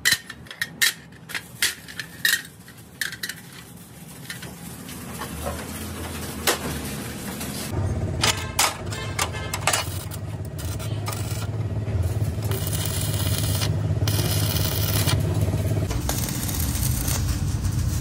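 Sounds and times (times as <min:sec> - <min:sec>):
electric hum: 0:07.7 - 0:18.0
welding arc crackle and hiss: 0:09.9 - 0:18.0.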